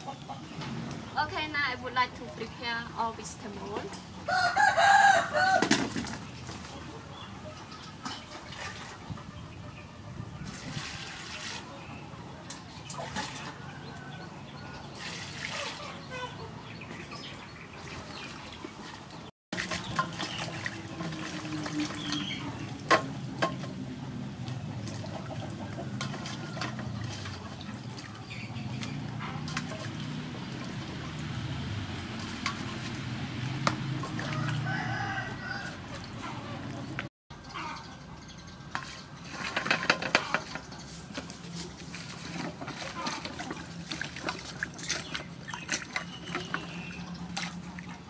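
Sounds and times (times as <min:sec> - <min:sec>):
water splashing in a jar: 0:12.5 - 0:13.7, 0:17.3 - 0:23.8, 0:24.4 - 0:37.1, 0:38.7 - 0:48.0
birds chirping: 0:15.6 - 0:31.3, 0:44.6 - 0:47.9.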